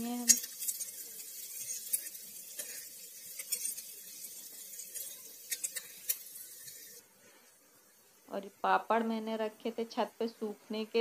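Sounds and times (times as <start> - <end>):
onions sizzling in hot oil: 0.0 - 7.1
spatula scraping a steel pan: 0.2 - 7.0.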